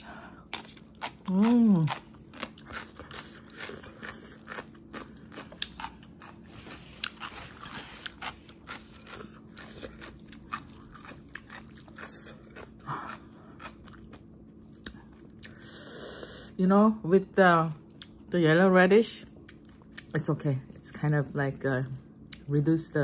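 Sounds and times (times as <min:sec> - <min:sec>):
person chewing food: 0:00.2 - 0:15.7.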